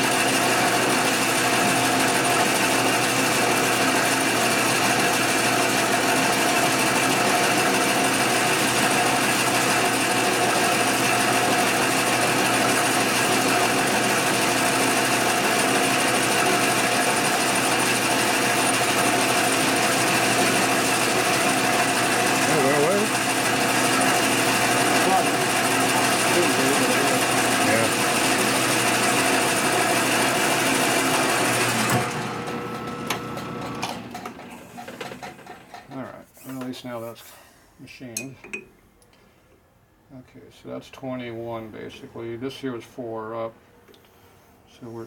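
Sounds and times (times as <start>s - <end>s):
metal lathe gear whine: 11.8s - 33.6s.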